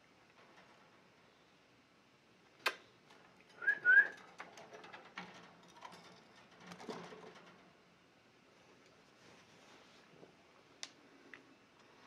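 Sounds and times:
ticks and scratches on wire cage: 2.6s - 7.8s.

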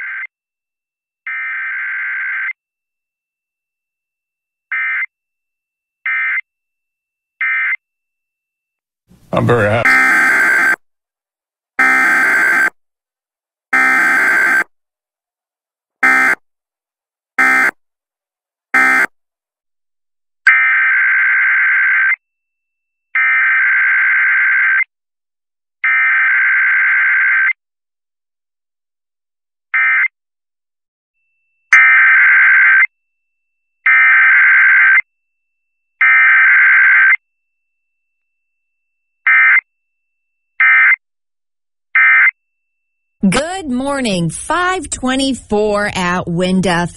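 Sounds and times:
short data blips: 9.5s - 10.8s.

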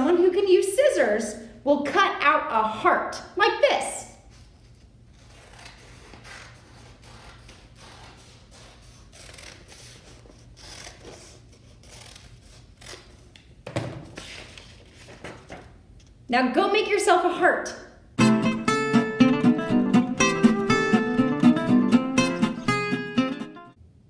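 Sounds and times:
paper handling sound: 4.3s - 16.2s
scissors snipping paper: 5.2s - 13.3s
paper rustling: 14.0s - 15.8s.

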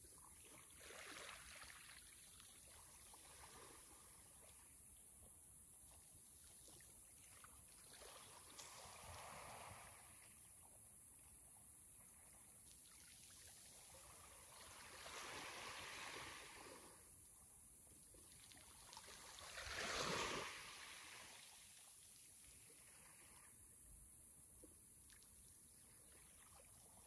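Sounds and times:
sea waves washing in: 8.5s - 10.4s, 13.8s - 17.2s, 19.0s - 21.8s.

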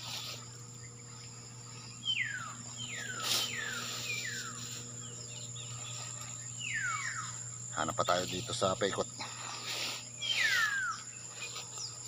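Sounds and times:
high insect drone: 0.0s - 12.0s
bird whistling descending notes: 6.6s - 7.4s, 10.2s - 11.1s.

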